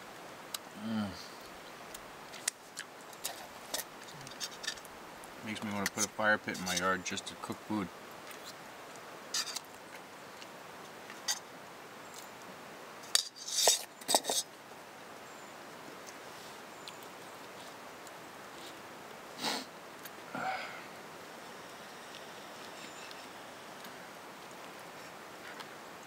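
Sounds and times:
pot clanking on stone: 0:13.1 - 0:14.4
knife scraping on wooden board: 0:13.2 - 0:14.4.

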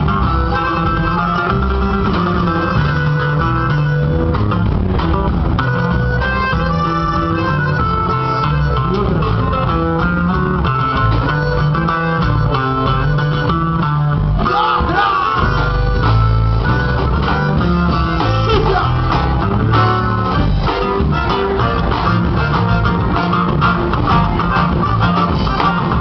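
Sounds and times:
bajo sexto: 0:00.0 - 0:26.0
button accordion melody: 0:00.0 - 0:26.0
drums: 0:00.0 - 0:26.0
electric bass: 0:00.0 - 0:26.0.

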